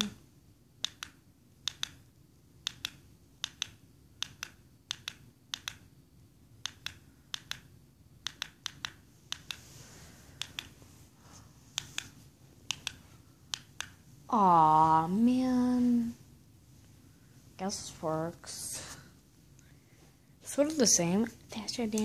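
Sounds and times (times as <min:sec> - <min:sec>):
small sharp clicks: 0:00.8 - 0:02.0, 0:02.6 - 0:05.9, 0:06.6 - 0:09.6, 0:10.4 - 0:10.8, 0:11.8 - 0:14.0.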